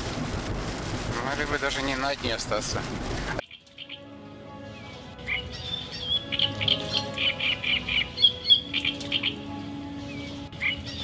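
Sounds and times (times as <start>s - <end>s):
small birds chirping: 3.4s - 4.1s, 4.8s - 11.0s
soft background music: 3.4s - 11.0s.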